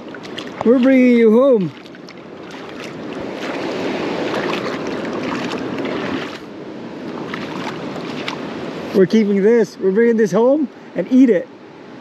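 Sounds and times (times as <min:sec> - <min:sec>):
water splashing and sloshing: 0:00.0 - 0:09.0.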